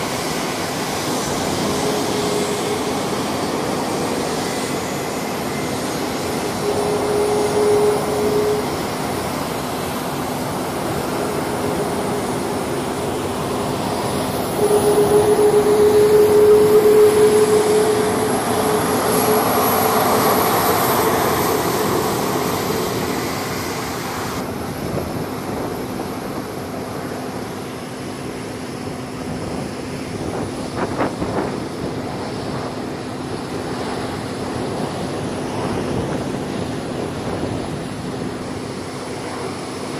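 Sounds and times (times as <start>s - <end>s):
low hum: 0.0s - 24.4s
high jet whine: 0.0s - 39.9s
jet engine rumble: 0.0s - 39.9s.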